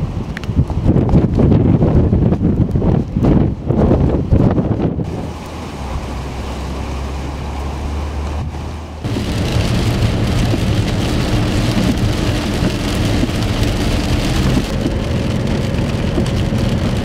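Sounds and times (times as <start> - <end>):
road noise: 0.0 - 17.0
wind rumble on microphone: 0.0 - 17.0
heavy rain on car windshield: 9.0 - 17.0.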